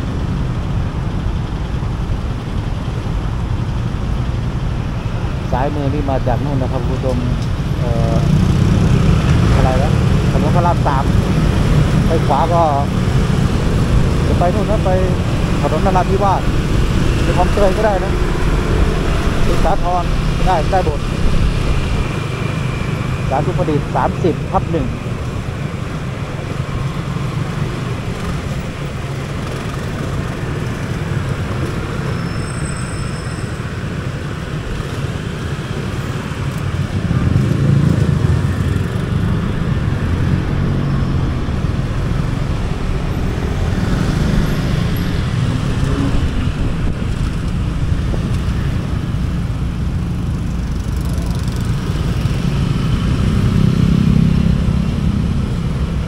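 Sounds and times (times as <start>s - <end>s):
motorcycle engine and road rumble: 0.0s - 56.0s.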